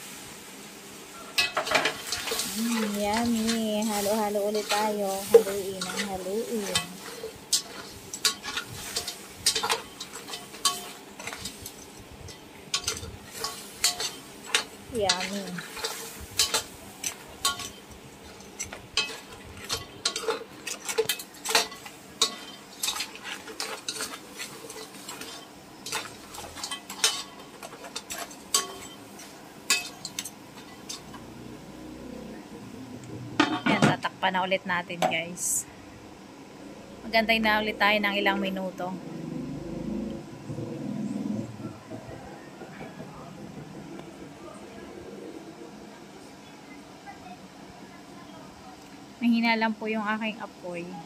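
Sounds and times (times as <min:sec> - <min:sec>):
soft sizzle: 0:00.0 - 0:51.0
metal ladle scraping wok: 0:01.4 - 0:31.8.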